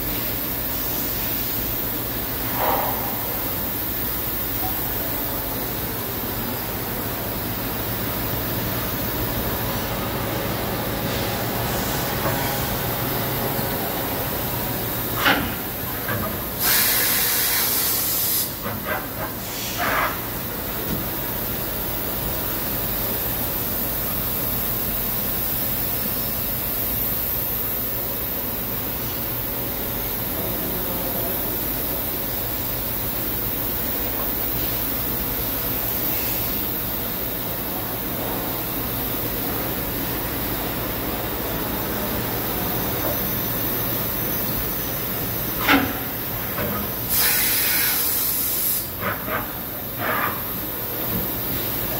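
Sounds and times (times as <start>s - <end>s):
machining center humming: 1.6s - 16.6s
compressed air hiss: 14.7s - 20.8s, 34.5s - 37.0s, 42.8s - 51.9s.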